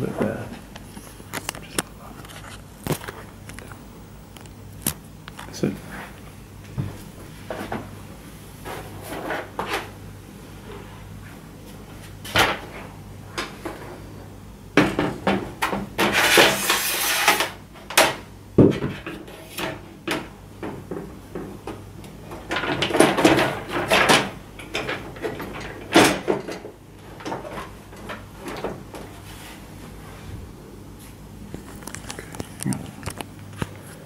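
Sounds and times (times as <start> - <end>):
plastic cover scraping and rattling: 16.0 - 17.6.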